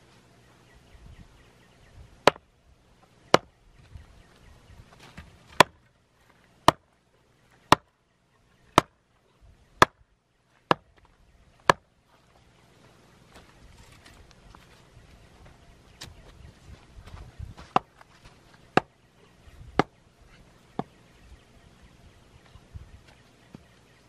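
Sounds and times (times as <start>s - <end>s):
wooden mallet striking stake: 2.2s - 2.5s, 3.3s - 3.5s, 5.1s - 5.8s, 6.6s - 6.9s, 7.7s - 7.9s, 8.8s - 9.0s, 9.8s - 10.0s, 10.7s - 11.0s, 11.6s - 11.9s.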